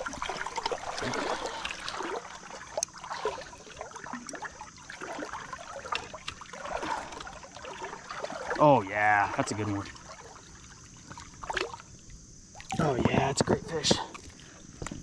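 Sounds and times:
river water splashing: 0.0s - 14.7s.

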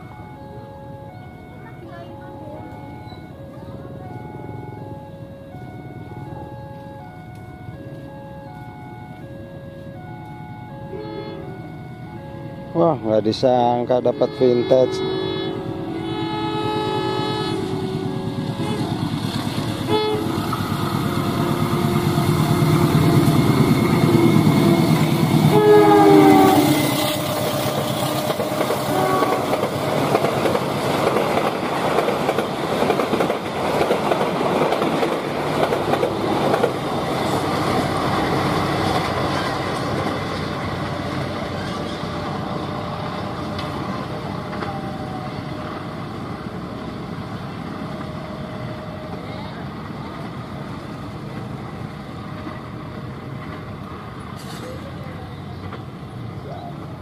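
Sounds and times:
diesel locomotive engine: 0.0s - 57.0s
locomotive horn: 6.8s - 30.1s
train wheels clattering over rails: 17.8s - 44.8s.

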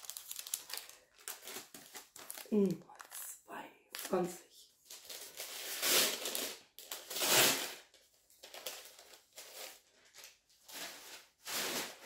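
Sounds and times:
paper bag crinkling: 0.0s - 3.3s.

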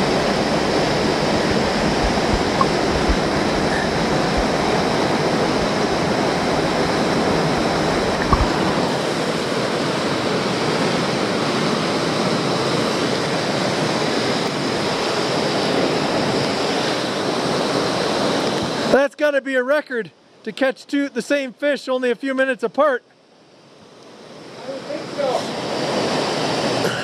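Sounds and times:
stream rushing over rock: 0.0s - 19.0s
underwater rumble with knocks: 1.4s - 8.8s.

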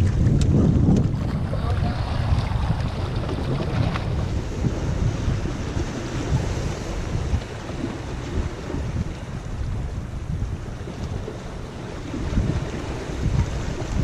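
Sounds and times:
water washing against rocks: 0.0s - 9.0s
wind buffeting microphone: 0.0s - 14.0s.

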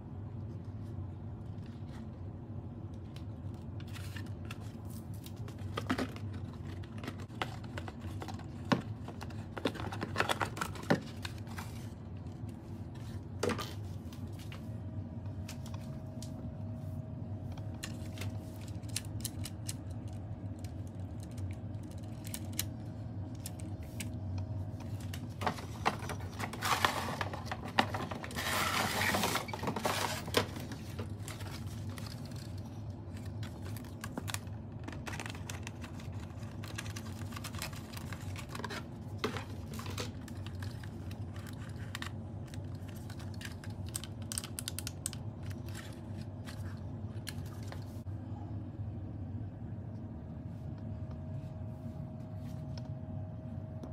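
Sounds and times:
steady low hum: 0.0s - 53.9s
cardboard rustling and scraping: 24.7s - 32.6s.

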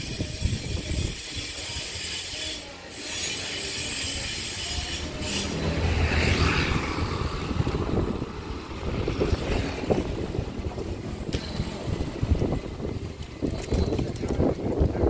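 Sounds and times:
wind on microphone: 0.0s - 2.1s, 3.7s - 15.0s
motorcycle passing: 3.6s - 13.0s.

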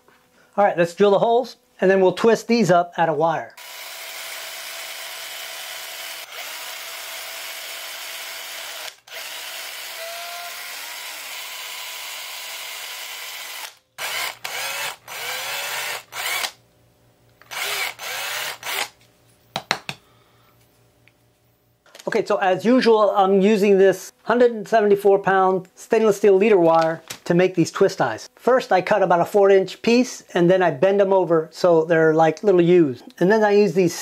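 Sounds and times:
cordless drill boring into wood: 3.6s - 16.6s, 17.4s - 19.0s.

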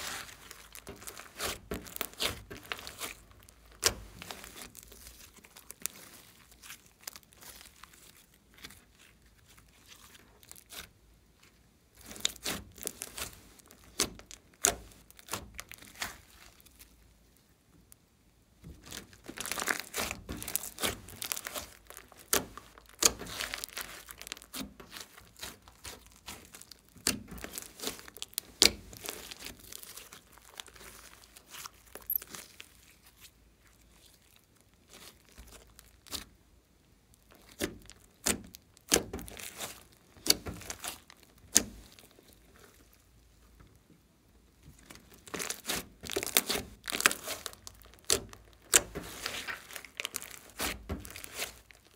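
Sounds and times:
slime crackling and popping: 0.0s - 10.9s, 11.9s - 17.1s, 18.7s - 43.1s, 44.8s - 51.9s.

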